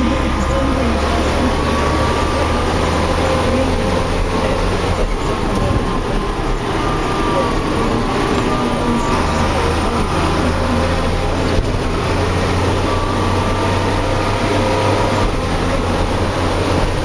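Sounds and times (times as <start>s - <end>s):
tractor diesel engine droning: 0.0s - 17.0s
wind and road noise: 0.0s - 17.0s.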